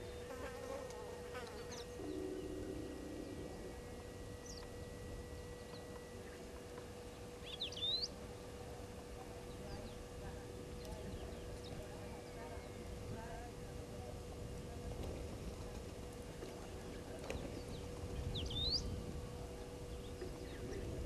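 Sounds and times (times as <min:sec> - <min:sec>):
flying insect buzzing close by: 0:00.0 - 0:03.6
insects buzzing: 0:00.0 - 0:13.5
faint steady hum: 0:00.0 - 0:21.0
high bird chirps: 0:07.4 - 0:08.2.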